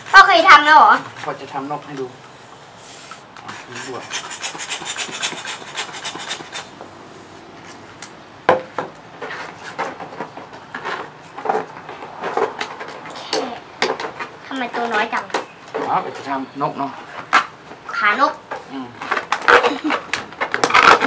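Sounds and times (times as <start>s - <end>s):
hand air pump strokes: 2.8s - 6.8s
balloon rubber squeaking: 19.1s - 21.0s.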